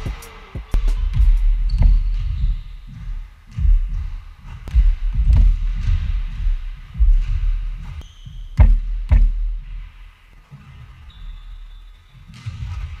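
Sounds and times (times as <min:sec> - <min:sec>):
basketball bouncing on wooden floor: 0:00.1 - 0:13.0.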